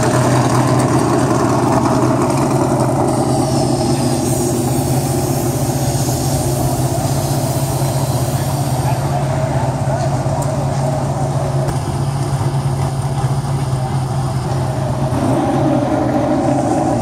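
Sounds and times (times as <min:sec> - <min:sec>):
engine running steadily: 0:00.0 - 0:17.0.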